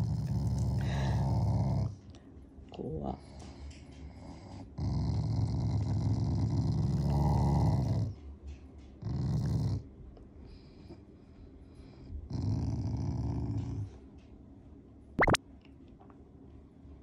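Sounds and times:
dog growling: 0.0s - 2.0s, 4.4s - 8.2s, 9.0s - 9.9s, 12.2s - 13.9s.

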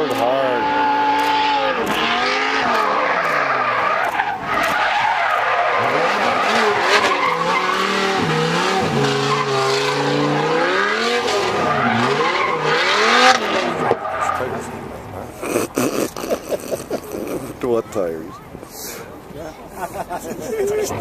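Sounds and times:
car engine revving: 0.0s - 17.4s
tyres squealing: 0.6s - 14.8s.

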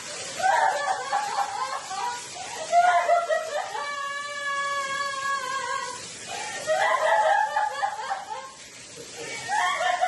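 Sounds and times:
voices: 0.3s - 10.0s.

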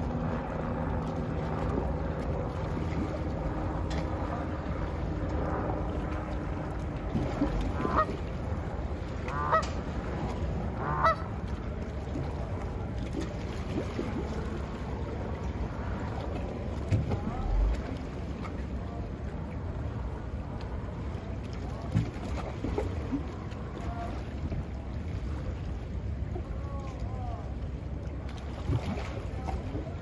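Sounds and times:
low background rumble: 0.0s - 30.0s
goose honking: 10.8s - 11.2s.

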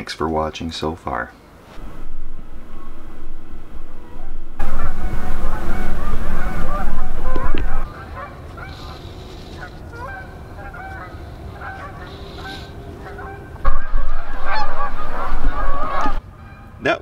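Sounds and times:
wind rumble on microphone: 1.8s - 8.0s, 13.6s - 16.2s
geese honking: 1.8s - 16.9s.

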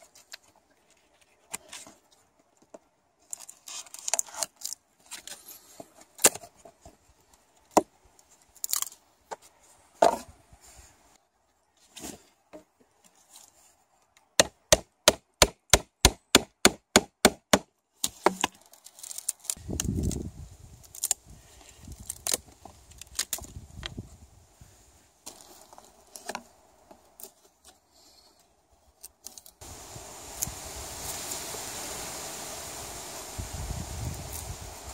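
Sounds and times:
wood crackling and splintering: 3.2s - 5.5s, 8.2s - 9.0s, 18.0s - 24.0s.

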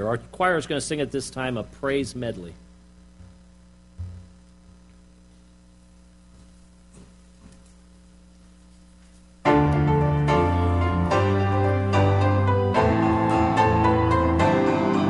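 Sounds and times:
piano accompaniment: 9.5s - 15.0s.

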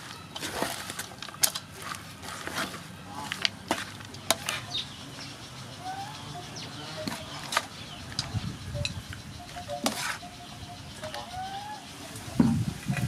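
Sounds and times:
bird calls: 0.0s - 13.0s
utensil scraping metal bowl: 9.6s - 11.3s.

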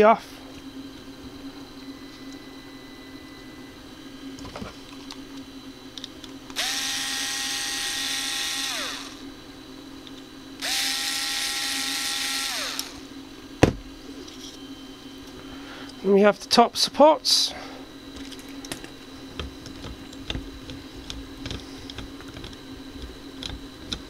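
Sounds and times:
power tool motor whining: 6.5s - 9.3s, 10.6s - 14.6s.

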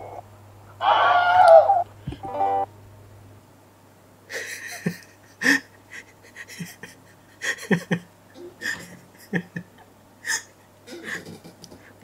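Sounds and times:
man laughing breathily: 4.3s - 12.0s.

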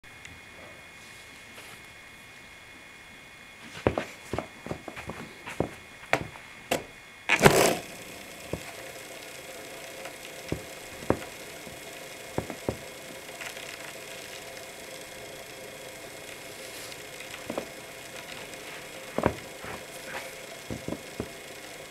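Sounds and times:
wheel spinning with faint whir: 0.0s - 21.9s
wheel flicked into spin: 6.7s - 21.9s.

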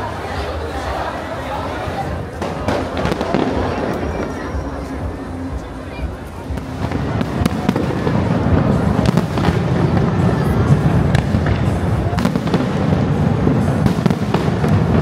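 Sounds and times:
heavy low rumble: 0.0s - 15.0s
fireworks bangs and crackles: 1.8s - 15.0s.

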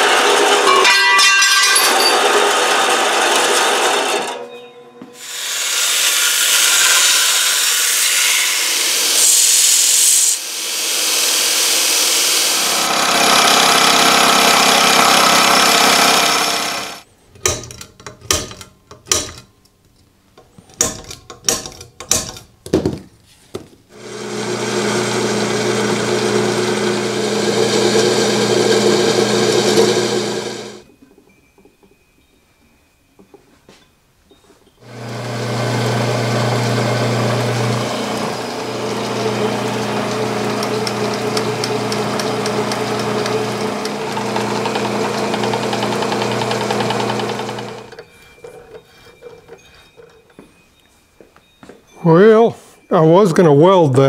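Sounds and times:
milling machine cutting steel: 0.0s - 4.4s, 5.2s - 17.0s, 24.0s - 30.8s, 34.8s - 50.2s
bandsaw cutting steel: 0.0s - 4.5s, 5.2s - 17.1s, 23.9s - 30.8s, 34.8s - 50.0s
drill press drilling steel: 2.1s - 4.4s, 5.2s - 17.0s, 24.0s - 30.8s, 34.8s - 50.1s.

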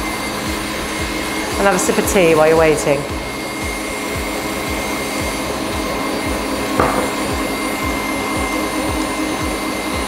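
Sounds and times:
short knock: 6.8s - 7.3s.

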